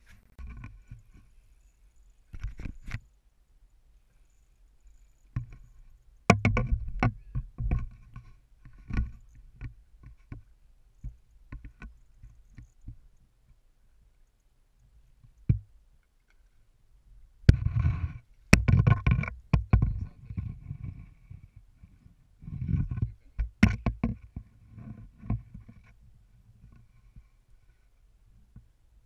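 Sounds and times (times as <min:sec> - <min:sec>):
knocks against boat: 0:06.3 - 0:07.2.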